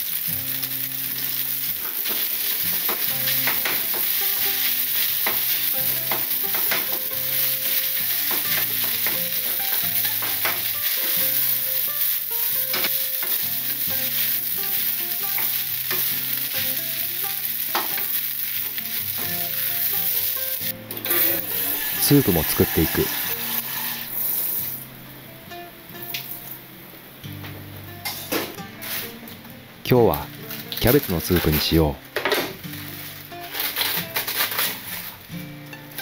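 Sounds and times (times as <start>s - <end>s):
rice sizzling in a frying pan: 0.0s - 25.0s, 25.9s - 26.6s, 28.0s - 36.0s
spatula scraping a pan: 1.2s - 20.4s, 21.0s - 24.7s, 32.9s - 35.2s.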